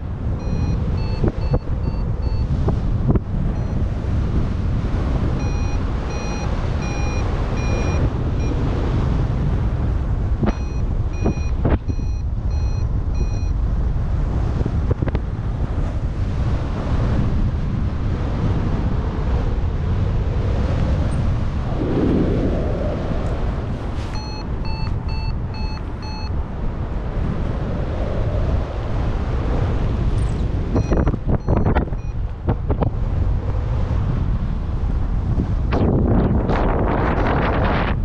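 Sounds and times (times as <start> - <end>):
wind rushing over microphone: 0.0 - 38.0
variometer short beeps: 0.4 - 2.6, 3.6 - 3.9, 5.4 - 8.6, 10.4 - 13.6, 24.1 - 26.4, 30.2 - 32.2.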